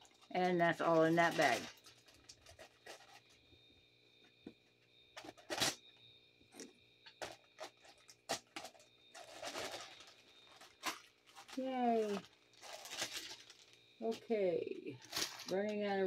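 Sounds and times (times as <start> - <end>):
packaging rustling: 0.0 - 3.4, 7.1 - 13.9, 15.0 - 15.8
faint high whine: 0.0 - 16.0.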